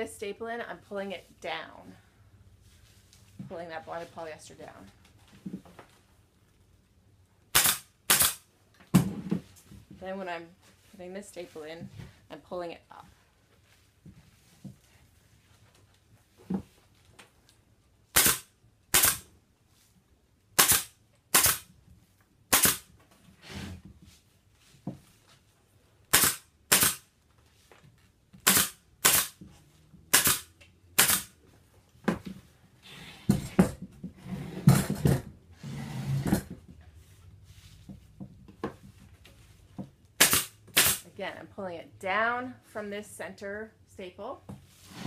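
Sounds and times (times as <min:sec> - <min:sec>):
pneumatic staple gun firing: 0:07.5 - 0:08.4, 0:18.1 - 0:19.3, 0:20.6 - 0:21.7, 0:22.5 - 0:22.9, 0:26.1 - 0:27.0, 0:28.4 - 0:29.4, 0:30.1 - 0:31.3, 0:40.2 - 0:41.0
rustling of padding by hand: 0:31.4 - 0:40.1.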